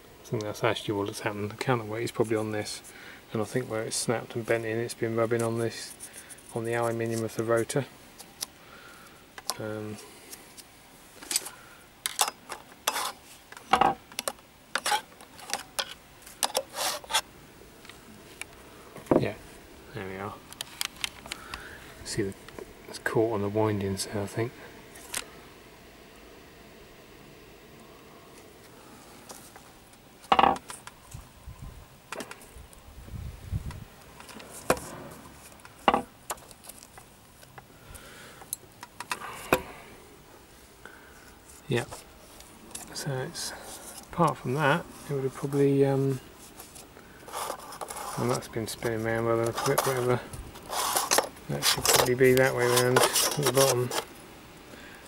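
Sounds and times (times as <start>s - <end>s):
metal clinks and scrapes: 46.6s - 54.1s.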